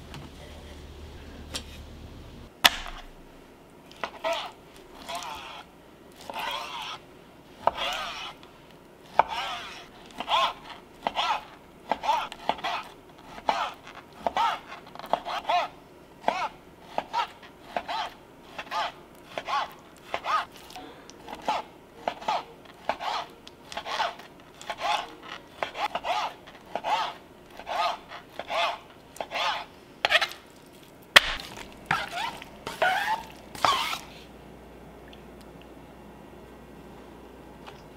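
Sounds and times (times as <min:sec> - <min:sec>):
knife cutting on plastic board: 0:04.0 - 0:07.0, 0:07.6 - 0:08.4, 0:09.1 - 0:20.6, 0:21.3 - 0:30.4, 0:31.2 - 0:34.1.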